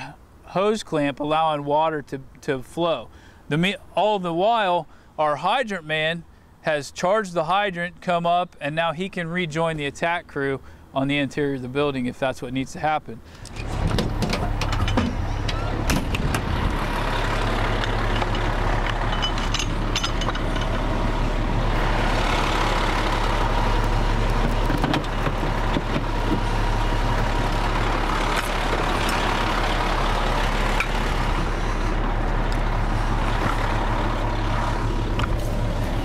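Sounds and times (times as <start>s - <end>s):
diesel engine running: 13.3s - 36.0s
metallic clinks of hose couplings: 17.8s - 20.8s.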